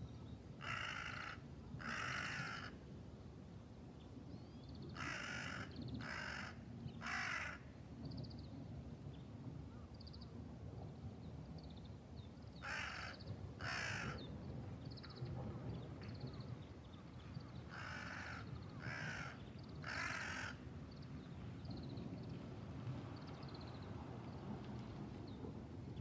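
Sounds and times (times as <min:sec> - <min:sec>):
crow cawing: 0:00.6 - 0:02.8, 0:05.0 - 0:07.6, 0:12.6 - 0:14.2, 0:17.7 - 0:20.6.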